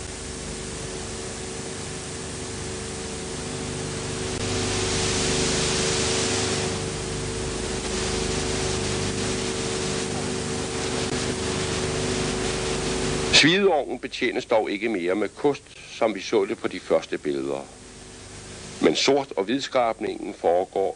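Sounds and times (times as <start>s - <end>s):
low hum: 0.0s - 13.4s
film hiss: 0.0s - 20.9s.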